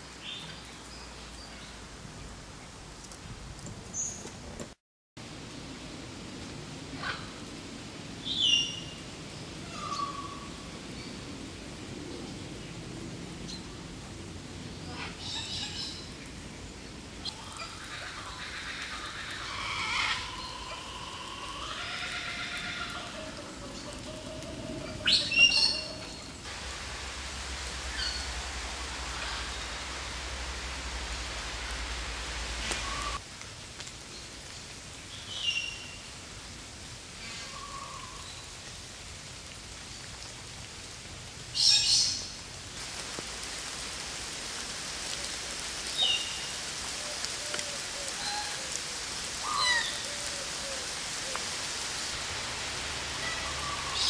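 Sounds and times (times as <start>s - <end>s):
falling rain hiss: 0.0s - 54.0s
birds chirping: 23.6s - 33.2s.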